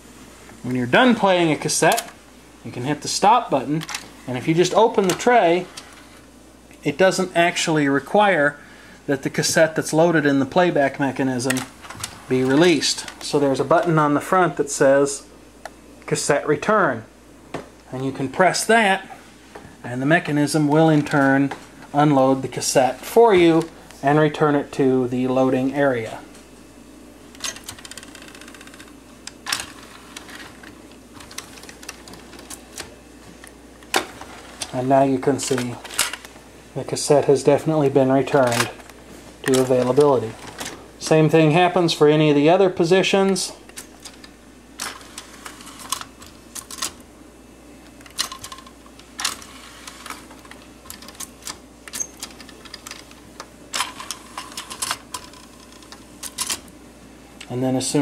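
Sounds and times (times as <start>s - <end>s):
faint motor hum: 0.0s - 58.0s
cassette mechanism clicks: 1.8s - 2.2s, 27.3s - 34.8s, 43.3s - 47.1s, 47.9s - 56.7s
mechanism clunk: 27.3s - 33.0s.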